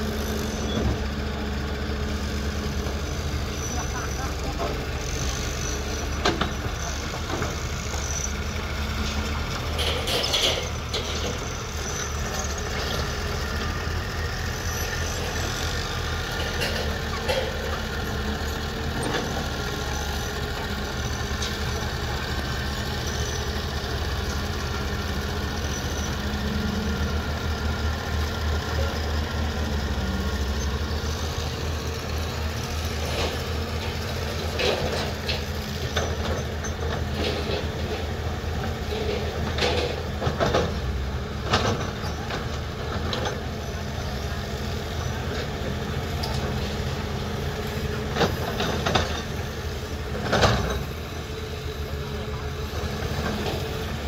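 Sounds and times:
diesel engines running: 0:00.0 - 0:54.0
sharp metal knocks and clanks: 0:09.7 - 0:11.4.

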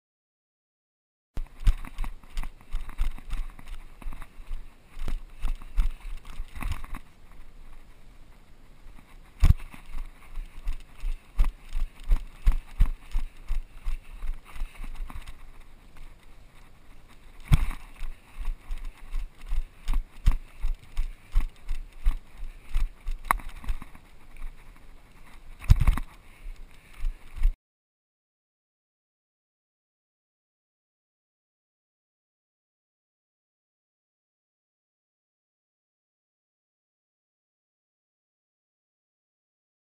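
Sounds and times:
running footsteps on dirt: 0:01.4 - 0:27.6.

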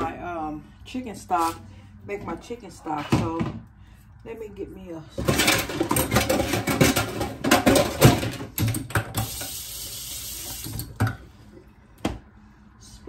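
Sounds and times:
faucet running into sink: 0:09.1 - 0:11.0.

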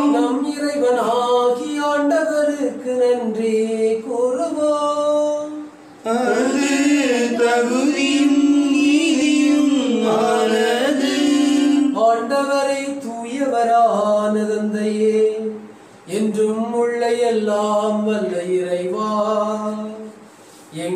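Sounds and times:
hymn sung in long held notes: 0:00.0 - 0:01.7, 0:05.4 - 0:12.5.

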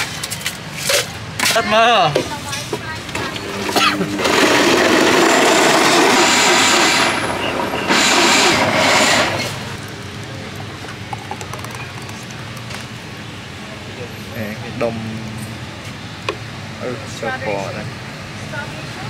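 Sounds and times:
electric blender running: 0:03.1 - 0:09.5.

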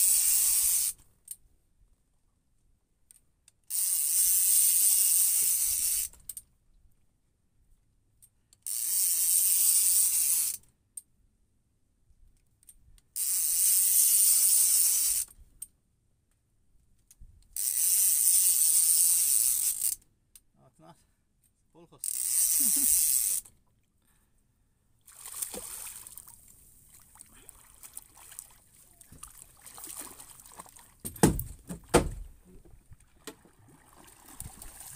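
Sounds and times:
fishing reel ratchet whir: 0:00.0 - 0:01.0, 0:03.7 - 0:06.3, 0:08.6 - 0:10.6, 0:13.2 - 0:15.3, 0:17.6 - 0:20.0, 0:22.0 - 0:23.5.

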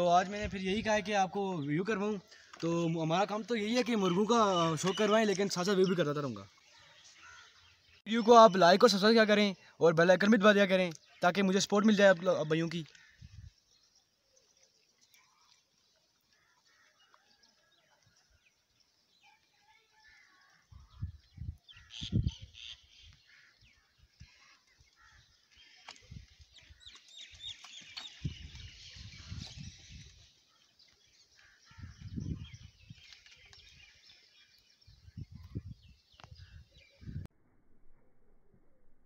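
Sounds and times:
small birds chirping: 0:00.0 - 0:37.3
wind rumbling on microphone: 0:20.7 - 0:23.2, 0:26.0 - 0:30.3, 0:31.4 - 0:34.0, 0:34.7 - 0:37.3.

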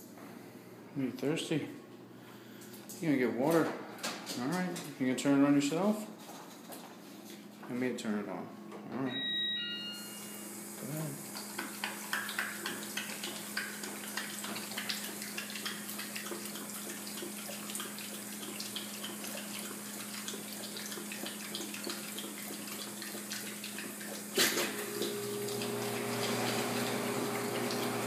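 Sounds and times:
dog lapping water: 0:11.2 - 0:28.0
water splashing into basin: 0:11.2 - 0:28.0.

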